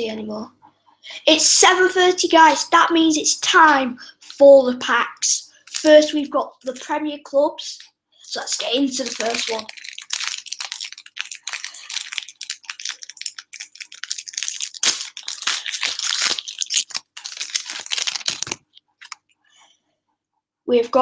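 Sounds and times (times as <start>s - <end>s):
plastic wrapper tearing: 5.7s - 6.1s, 8.3s - 19.2s.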